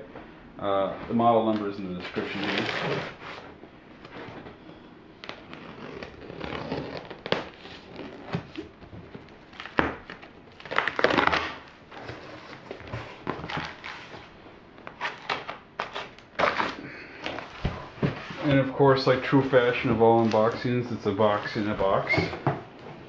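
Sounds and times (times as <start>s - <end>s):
tape and cardboard crackling: 1.4s - 4.6s, 5.2s - 18.4s
knife cutting packing tape: 5.2s - 8.7s, 10.6s - 12.8s, 15.0s - 17.4s.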